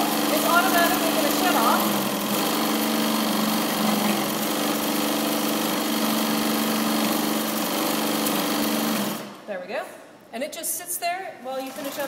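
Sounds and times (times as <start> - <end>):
sewing machine running: 0.0 - 9.4, 11.6 - 12.0.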